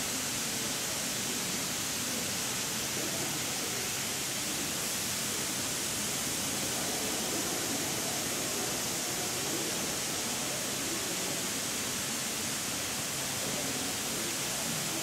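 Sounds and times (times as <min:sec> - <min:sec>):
sprinkler spraying water mist: 0:04.6 - 0:15.0.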